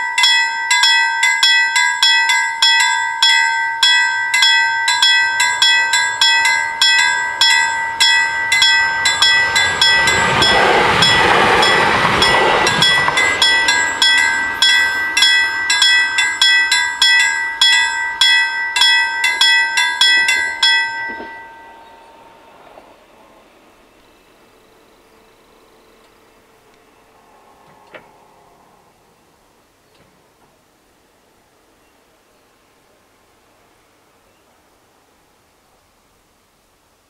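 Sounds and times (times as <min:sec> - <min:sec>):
level-crossing bells ringing: 0:00.0 - 0:23.0
electric train passing: 0:00.0 - 0:31.8.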